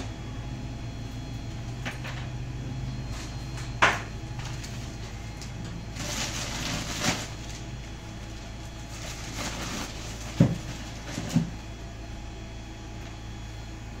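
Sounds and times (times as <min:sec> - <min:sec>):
steady low hum: 0:00.0 - 0:14.0
plastic bag rustling: 0:04.3 - 0:11.6.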